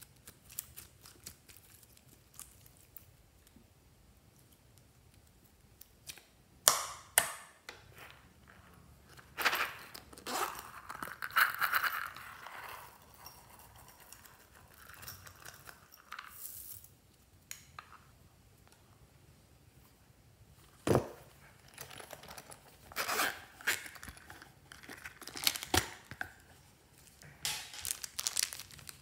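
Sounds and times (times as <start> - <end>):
rustling and rattling of beads: 7.9 - 17.1, 20.7 - 29.0.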